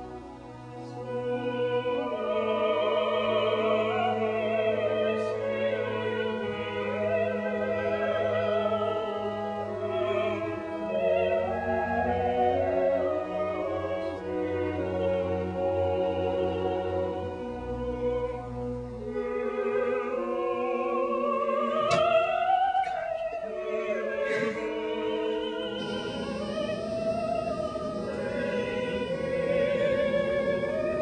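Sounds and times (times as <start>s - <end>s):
operatic singing: 0.0s - 31.0s
orchestra playing: 23.4s - 31.0s.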